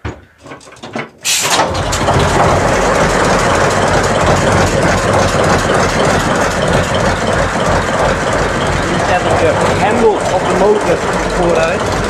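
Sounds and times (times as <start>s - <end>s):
compressed air hiss: 1.2s - 1.5s
diesel engine low throb: 1.9s - 12.0s.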